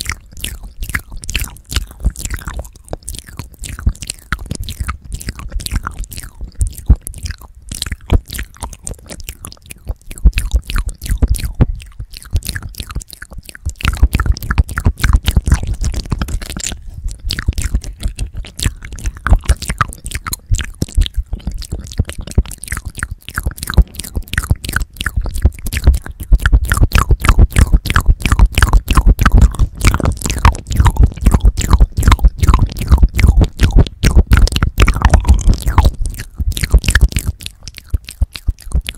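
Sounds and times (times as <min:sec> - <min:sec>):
wet mouth sounds and licking: 0:00.0 - 0:38.9.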